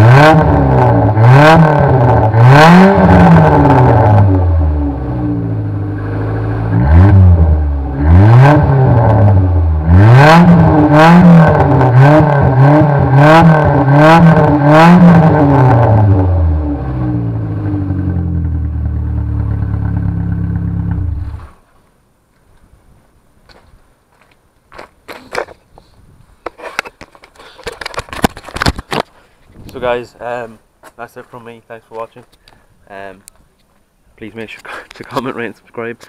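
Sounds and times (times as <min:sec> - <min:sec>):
car engine idling and revving: 0:00.0 - 0:21.6.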